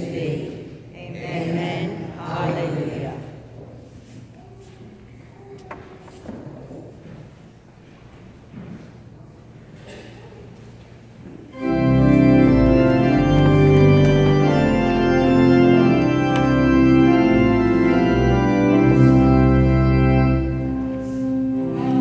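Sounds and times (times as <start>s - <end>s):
church organ playing held chords: 11.5s - 22.0s.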